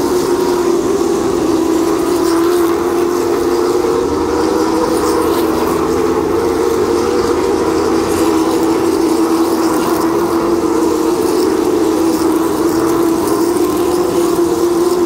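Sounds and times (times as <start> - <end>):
race car engines droning: 0.0 - 15.0.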